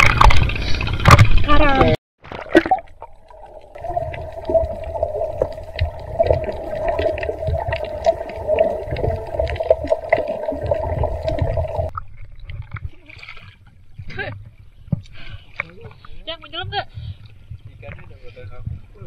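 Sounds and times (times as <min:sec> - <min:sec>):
underwater hum: 0:02.2 - 0:12.9.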